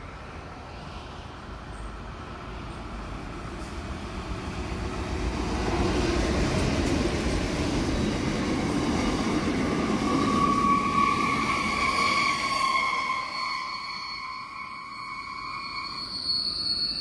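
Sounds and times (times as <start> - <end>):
diesel locomotive engines: 0.0 - 17.0
wheels rumbling on rails: 0.0 - 17.0
high steady squeal: 9.7 - 17.0.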